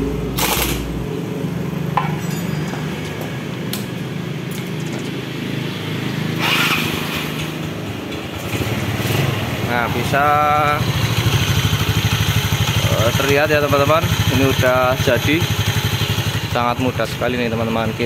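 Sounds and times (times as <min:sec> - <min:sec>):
scooter engine cranking and starting: 0:00.3 - 0:01.0, 0:06.3 - 0:16.6
impact wrench burst: 0:00.4 - 0:00.9, 0:06.4 - 0:07.4.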